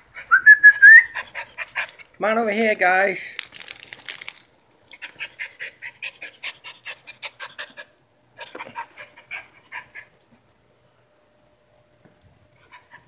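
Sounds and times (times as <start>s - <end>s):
small dogs yipping: 4.9s - 10.1s.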